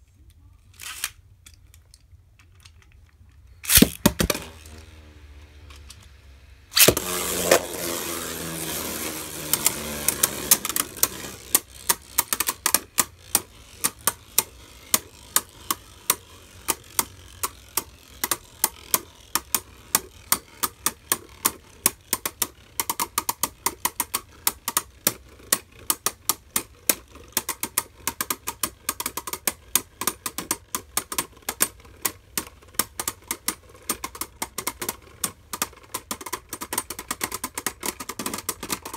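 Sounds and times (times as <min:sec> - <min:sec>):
spinning tops clicking and grinding: 0:00.7 - 0:38.9
spinning top whirring: 0:03.5 - 0:38.9
spinning tops clacking: 0:03.6 - 0:04.8, 0:06.7 - 0:24.7.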